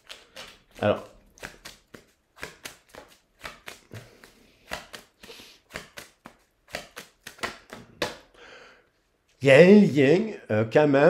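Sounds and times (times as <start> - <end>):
cards tapping and flicking: 0.0 - 8.3.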